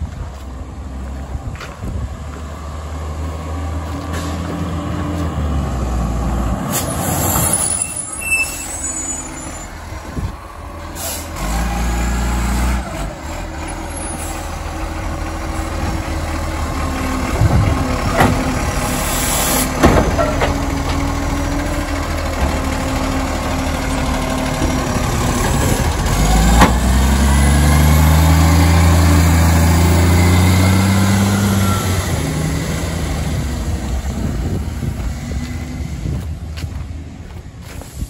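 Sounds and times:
diesel engine revving: 0:00.1 - 0:38.0
air brakes hissing: 0:06.7 - 0:09.7, 0:10.8 - 0:11.4, 0:18.8 - 0:20.3.

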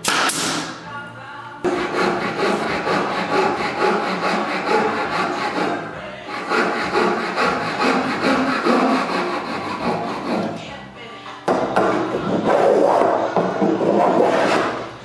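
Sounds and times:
hand saw cutting wood: 0:01.7 - 0:10.6.

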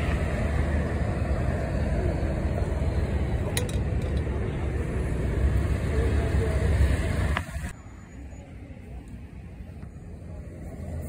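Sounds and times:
low rumbling background noise: 0:00.0 - 0:07.8.

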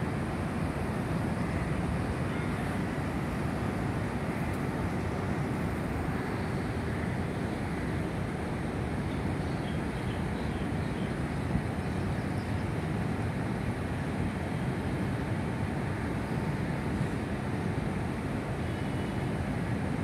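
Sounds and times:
low rumble of traffic: 0:00.0 - 0:20.0.

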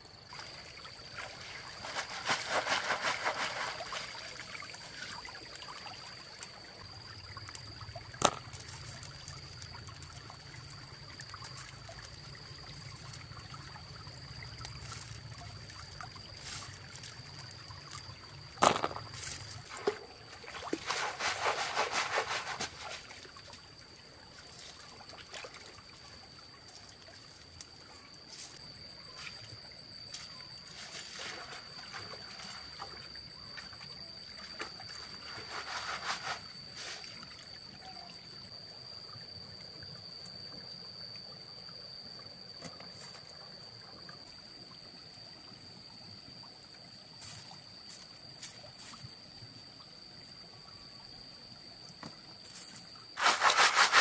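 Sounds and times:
water trickling: 0:00.1 - 0:20.8.

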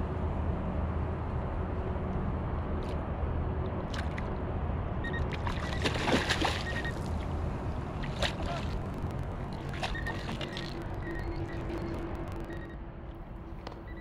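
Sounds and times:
steady low rumble: 0:00.0 - 0:14.0
splashing: 0:05.4 - 0:07.2, 0:08.0 - 0:10.9.

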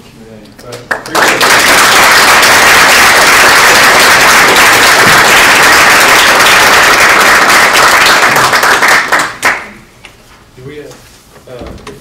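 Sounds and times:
small audience applauding: 0:00.7 - 0:09.9.

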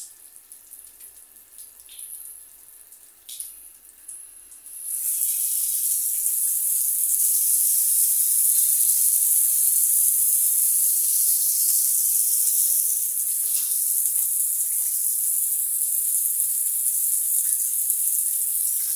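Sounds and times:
shower water spraying on tiles: 0:04.6 - 0:18.9.

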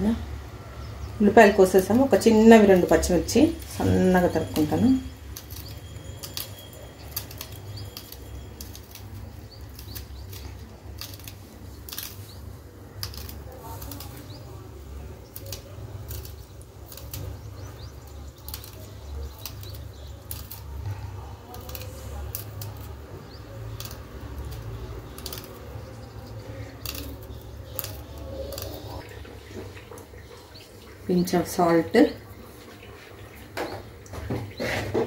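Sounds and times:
knife cutting chillies: 0:01.8 - 0:29.0.

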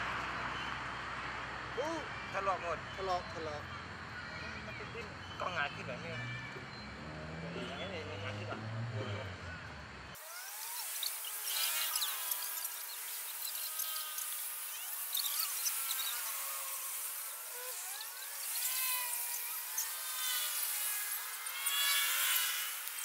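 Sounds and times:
high insect-like hiss: 0:10.2 - 0:23.0.

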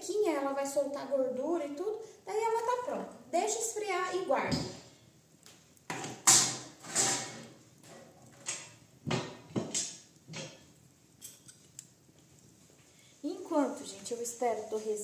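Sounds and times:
cookware and utensils clattering: 0:05.9 - 0:11.7.

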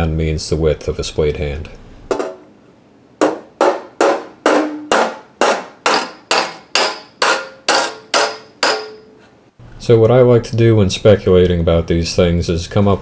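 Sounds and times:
hammer striking metal sheet: 0:03.2 - 0:09.2.

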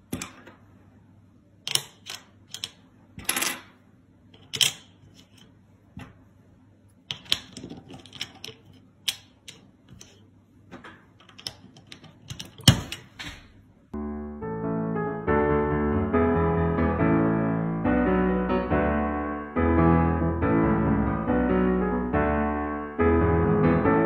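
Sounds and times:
plastic puzzle pieces clicking: 0:01.7 - 0:03.3, 0:07.1 - 0:10.2, 0:11.2 - 0:13.0
piano music: 0:14.0 - 0:24.0.

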